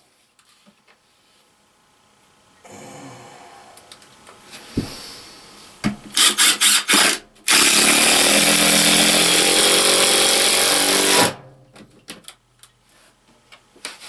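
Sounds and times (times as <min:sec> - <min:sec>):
cordless drill driving screw: 0:06.2 - 0:11.3.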